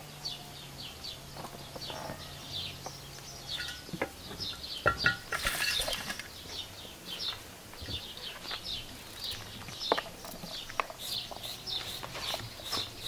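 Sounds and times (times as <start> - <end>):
small birds chirping: 0.0 - 13.0
sharp knocks on a plate: 4.8 - 5.4.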